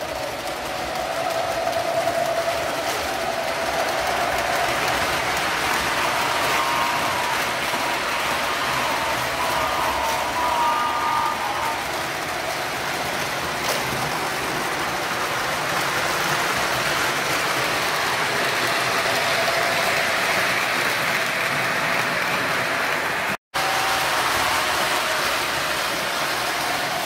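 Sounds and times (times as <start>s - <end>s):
locomotive motor hum: 0.0s - 15.2s
model train wheels rumbling: 0.0s - 27.0s.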